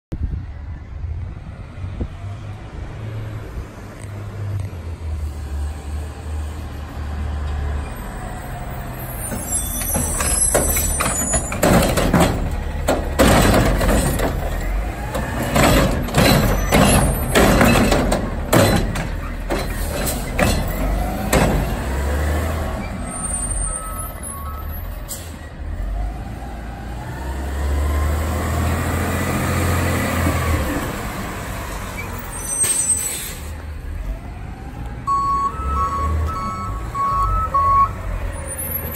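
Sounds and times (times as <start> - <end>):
bangs and clatter of cart tipping: 9.3 - 22.1
air brakes hissing: 32.0 - 33.7.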